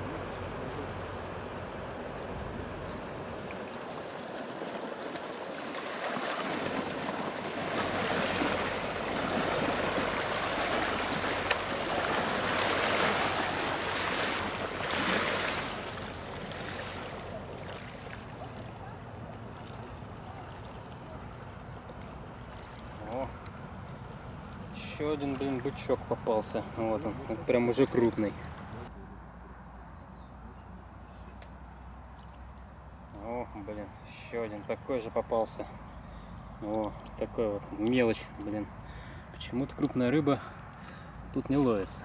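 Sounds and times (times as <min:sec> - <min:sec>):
waves splashing against bank: 0:00.0 - 0:28.9.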